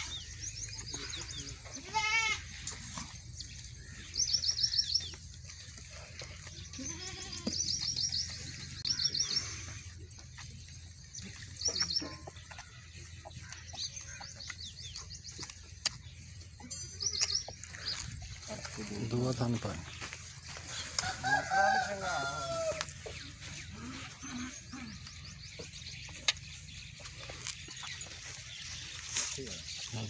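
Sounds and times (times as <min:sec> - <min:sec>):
small birds chirping: 0:00.0 - 0:30.0
goat bleating: 0:01.6 - 0:02.6, 0:06.6 - 0:07.6.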